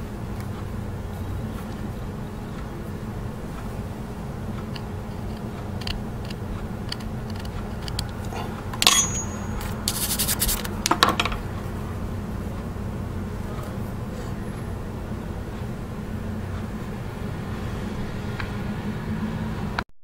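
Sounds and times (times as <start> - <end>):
steady low hum: 0.0 - 19.8
carving tool clicks and scrapes: 4.6 - 8.3, 8.9 - 11.0
toothbrush scrubbing wax: 9.8 - 10.7.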